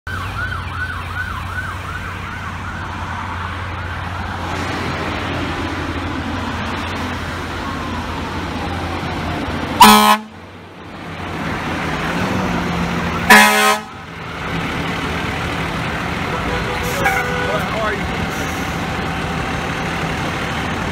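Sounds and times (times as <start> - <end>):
fire engine siren yelping: 0.1 - 4.5, 6.6 - 10.5, 16.0 - 20.9
truck engine rumble: 0.1 - 20.9
air horn blasts: 9.8 - 10.4, 13.3 - 14.0, 16.3 - 18.0.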